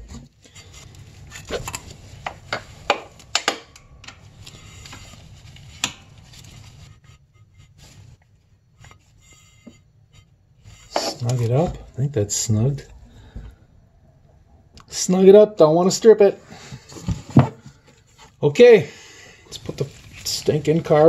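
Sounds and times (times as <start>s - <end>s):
glove and rag rustling: 0.0s - 12.0s, 19.5s - 21.0s.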